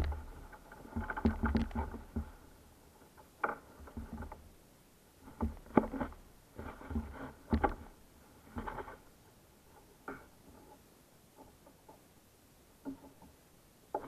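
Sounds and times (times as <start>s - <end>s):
gear knocking on plastic kayak hull: 0.0s - 2.4s, 5.3s - 8.0s.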